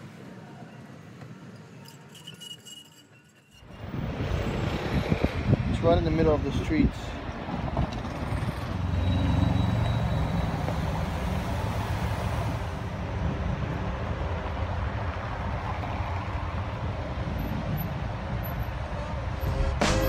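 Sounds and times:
traffic rumble: 0:00.0 - 0:20.0.

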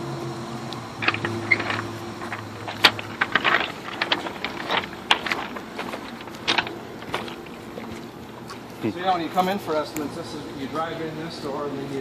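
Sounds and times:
low steady hum: 0:00.0 - 0:12.0
footsteps crunching on gravel: 0:01.0 - 0:09.7.

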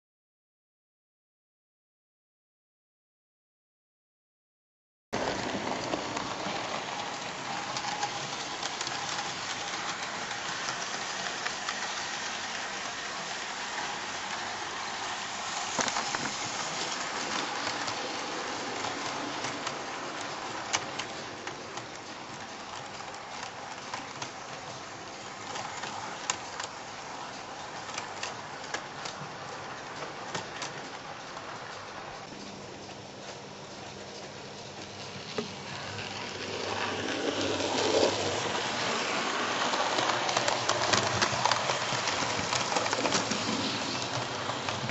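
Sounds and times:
model train wheels and motor whirring: 0:05.2 - 0:44.9
wheels clicking over rail joints: 0:05.2 - 0:44.9.

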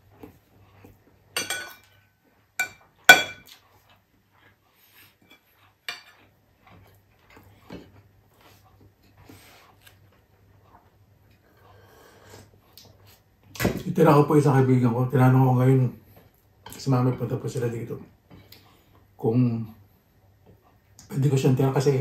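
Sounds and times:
metal spoon clinking on ceramic bowl: 0:01.4 - 0:01.9, 0:02.6 - 0:03.5.

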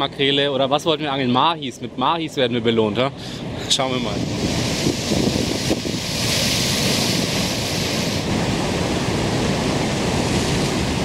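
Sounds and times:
surf breaking on rocks: 0:03.4 - 0:11.0.

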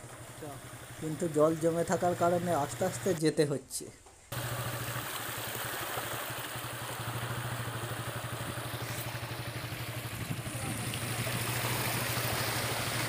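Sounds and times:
motorcycle engine at low revs: 0:00.0 - 0:03.2, 0:04.3 - 0:13.0
even hiss: 0:00.3 - 0:03.3.

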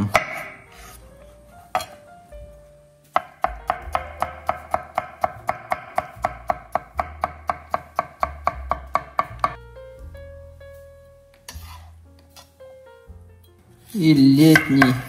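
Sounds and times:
knife chopping on wooden board: 0:00.0 - 0:00.6, 0:03.2 - 0:09.6.

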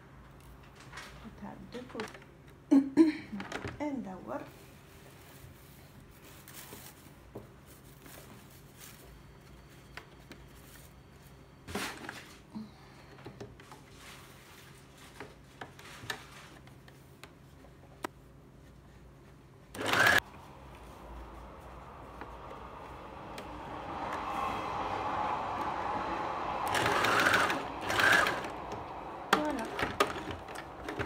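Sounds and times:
fabric rustling and sliding: 0:04.6 - 0:09.8, 0:13.7 - 0:16.8.

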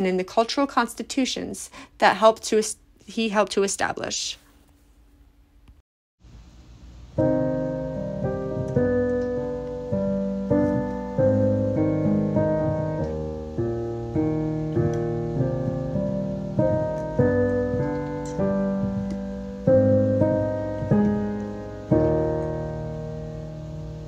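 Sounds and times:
slow piano chords: 0:06.9 - 0:24.0.

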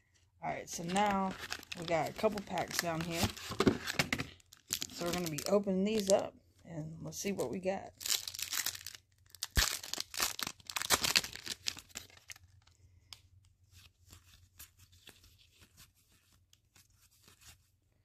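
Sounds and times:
cards rustling: 0:00.7 - 0:06.2, 0:08.0 - 0:12.6
foil wrapper tearing and crinkling: 0:00.8 - 0:06.1, 0:07.9 - 0:12.8.

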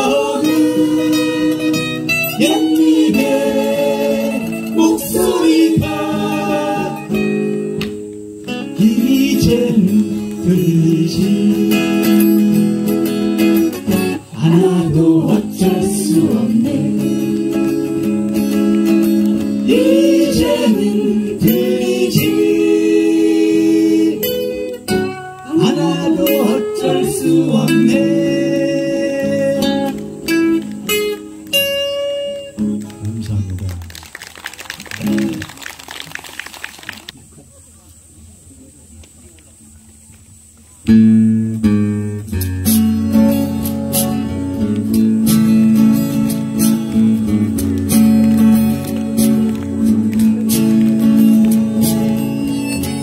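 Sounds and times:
person singing: 0:00.0 - 0:07.2, 0:14.4 - 0:17.9, 0:25.5 - 0:30.0
acoustic guitar playing: 0:00.0 - 0:33.5, 0:40.9 - 0:53.0.

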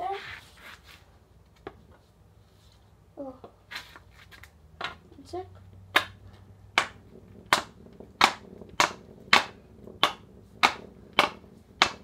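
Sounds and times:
hockey stick knocking: 0:04.2 - 0:05.1, 0:05.9 - 0:12.0.

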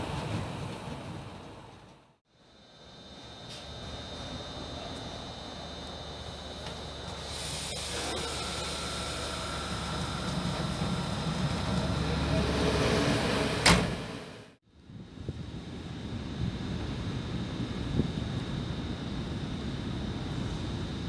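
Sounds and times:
electric locomotive passing: 0:00.0 - 0:14.6.

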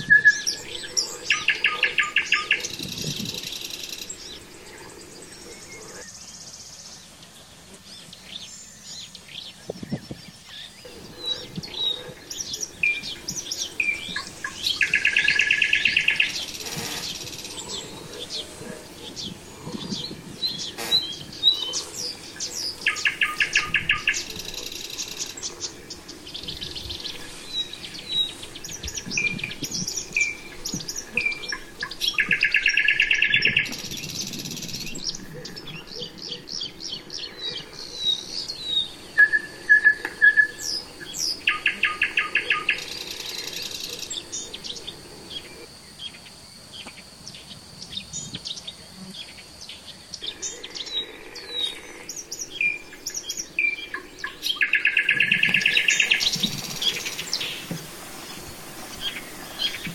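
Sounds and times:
songbirds singing: 0:00.0 - 0:59.9.

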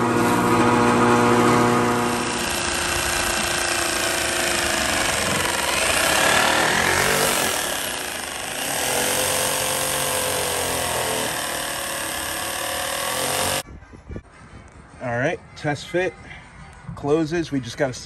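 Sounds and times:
jigsaw cutting plastic sheet: 0:00.6 - 0:13.6.

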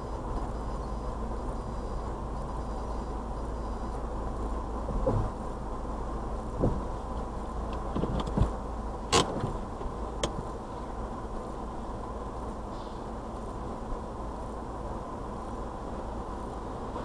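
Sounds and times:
faint steady tone: 0:00.0 - 0:07.9, 0:09.8 - 0:17.0
car wash machinery humming: 0:00.0 - 0:17.0.

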